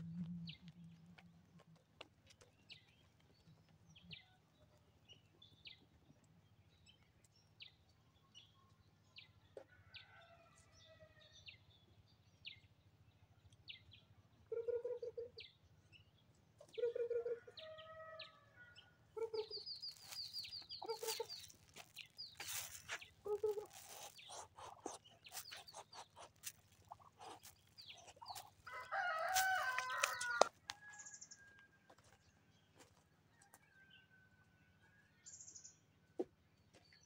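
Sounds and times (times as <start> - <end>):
small birds chirping: 19.2 - 31.5
hens clucking: 20.8 - 21.6, 22.4 - 28.6.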